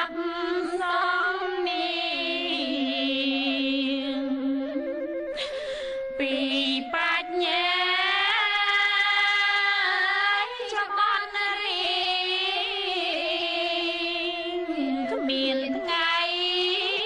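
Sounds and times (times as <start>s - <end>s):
person singing mourning song: 0.0s - 4.1s.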